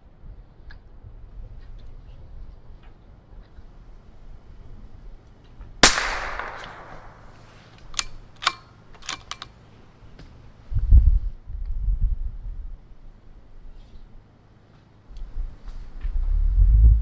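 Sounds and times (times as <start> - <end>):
rifle shot with echo: 5.8 - 7.7
rifle bolt clicks: 5.8 - 9.5.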